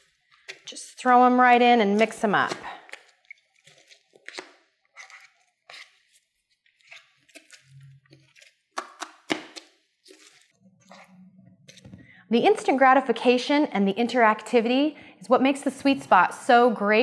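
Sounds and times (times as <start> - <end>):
plastic spatulas scraping frozen pan: 0.0 - 8.6, 9.4 - 11.9.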